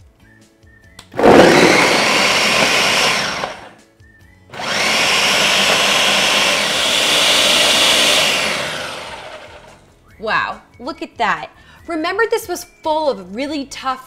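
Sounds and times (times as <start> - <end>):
blender crushing frozen fruit: 1.0 - 3.8, 4.5 - 9.8.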